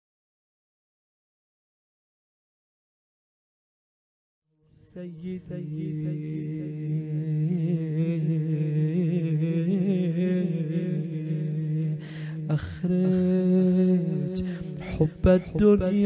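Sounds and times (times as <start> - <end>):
man chanting: 4.7 - 16.0.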